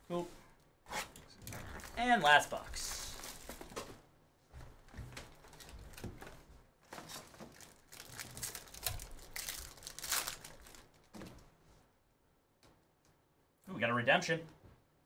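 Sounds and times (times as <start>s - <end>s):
foil wrapper crinkling and tearing: 6.9s - 11.1s.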